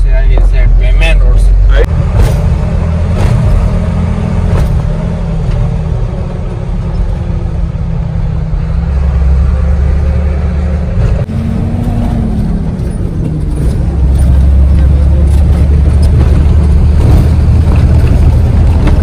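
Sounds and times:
truck engine drone from cab: 0.0 - 19.0.

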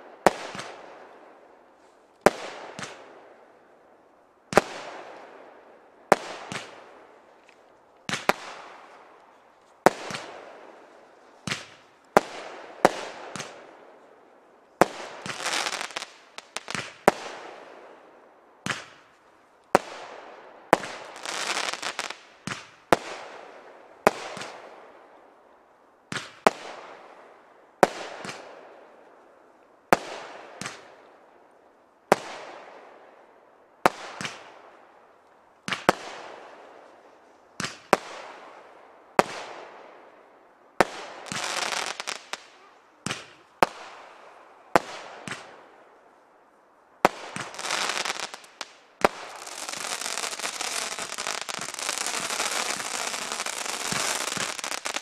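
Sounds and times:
firework crackling: 14.8 - 17.4, 20.7 - 22.7, 40.8 - 45.5, 47.0 - 55.0
firework bangs: 47.0 - 55.0.

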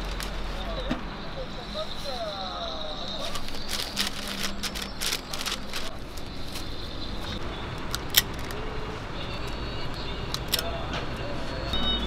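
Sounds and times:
street background noise: 0.0 - 12.0
paper and metal scoop scrapes: 3.2 - 6.7.

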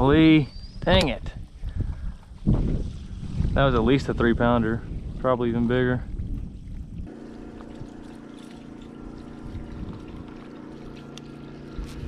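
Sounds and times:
boat motor humming: 6.2 - 12.0.

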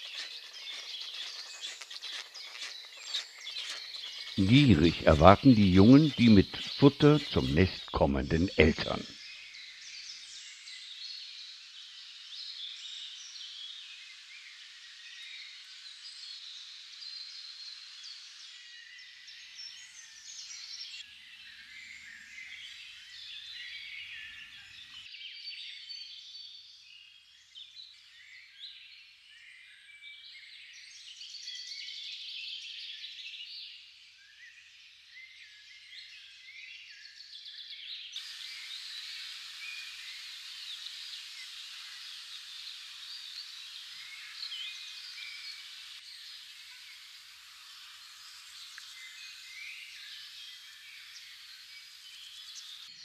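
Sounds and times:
birds chirping in chorus: 0.0 - 10.2, 38.0 - 53.0.

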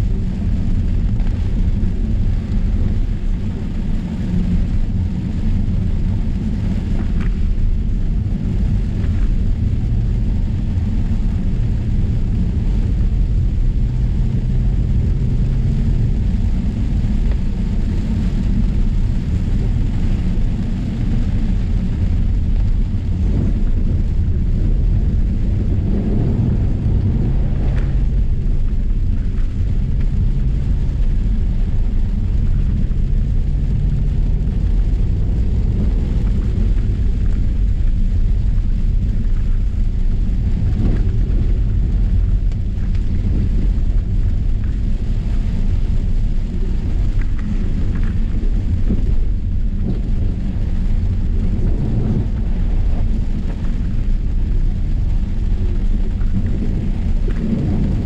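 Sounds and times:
car interior road rumble: 0.0 - 58.0
rain on car body: 0.0 - 58.0.

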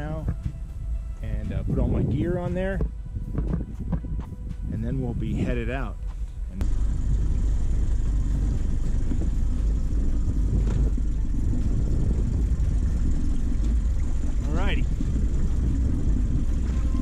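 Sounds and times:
outboard motor idling: 6.3 - 17.0.

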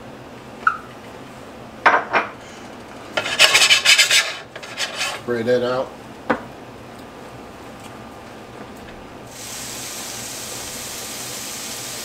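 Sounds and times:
bacon sizzling in a frying pan: 9.3 - 12.0.

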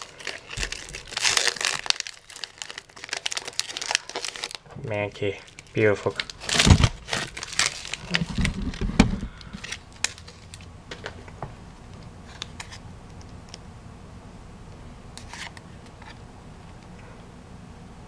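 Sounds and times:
low room hum: 0.0 - 18.0
cards clicking and scraping: 15.2 - 16.2.

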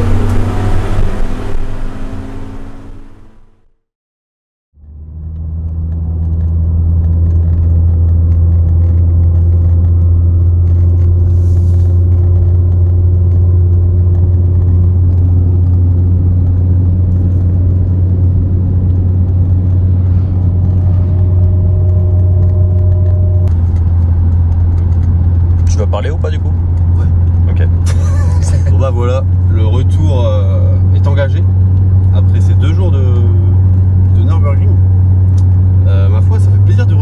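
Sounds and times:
car cabin engine and tyre drone: 0.0 - 3.8, 4.8 - 37.0.

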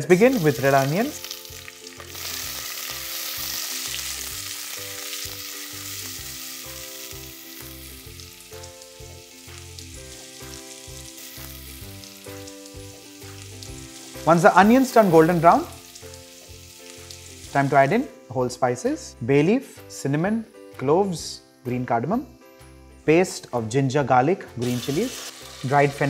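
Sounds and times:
onions sizzling in hot oil: 0.0 - 18.3, 24.6 - 26.0.

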